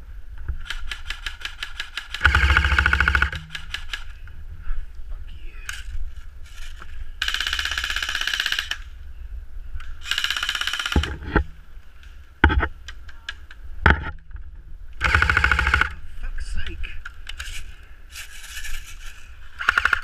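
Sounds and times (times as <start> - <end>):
airsoft rifle bursts: 0.6 - 4.2, 15.0 - 16.0, 19.6 - 20.0.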